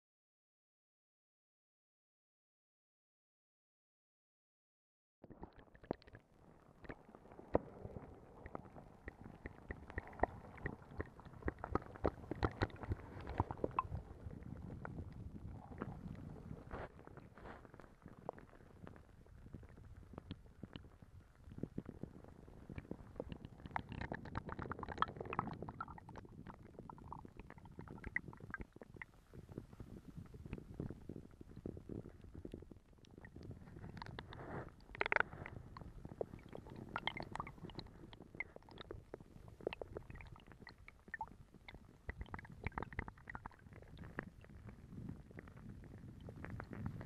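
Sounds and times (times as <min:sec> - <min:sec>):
water gurgling: 0:05.2 - 0:47.0
muffled underwater river rumble: 0:06.0 - 0:47.0
stones clicking underwater: 0:06.8 - 0:47.0.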